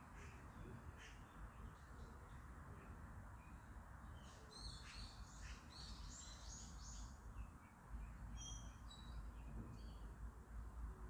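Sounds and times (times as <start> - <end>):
small birds chirping: 3.4 - 10.1.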